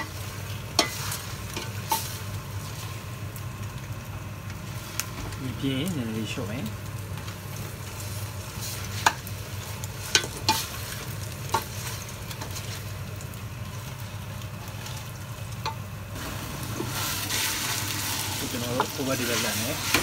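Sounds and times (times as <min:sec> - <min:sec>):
meat sizzling in a pot: 0:00.0 - 0:20.0
wooden spatula scraping a pot: 0:16.3 - 0:20.0.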